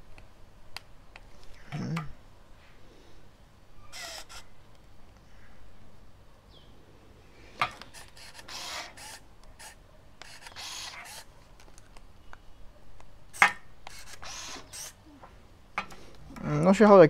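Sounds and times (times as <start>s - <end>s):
camera motor whir: 3.9s - 4.5s, 7.8s - 11.3s, 13.9s - 15.0s.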